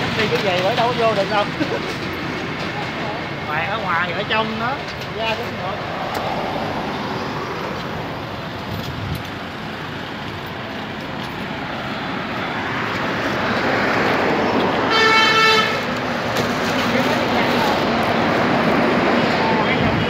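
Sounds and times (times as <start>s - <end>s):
street traffic noise: 0.0s - 20.0s
vehicle horn: 14.9s - 15.9s.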